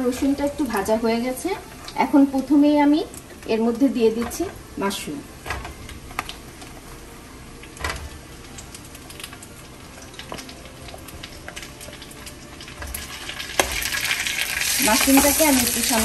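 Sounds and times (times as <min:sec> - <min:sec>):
butter crackling in a frying pan: 0:07.6 - 0:16.0.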